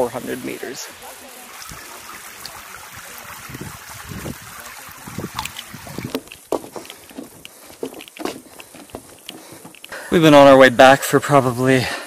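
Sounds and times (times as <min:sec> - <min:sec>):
stream water over rock: 0:00.0 - 0:11.8
wind on microphone: 0:02.9 - 0:06.4
footsteps on wooden boardwalk: 0:05.2 - 0:10.3.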